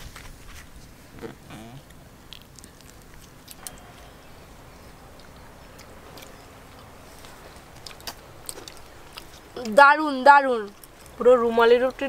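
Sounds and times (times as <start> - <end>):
soft chewing: 0.0 - 9.8, 10.5 - 12.0
low background hiss: 0.0 - 12.0.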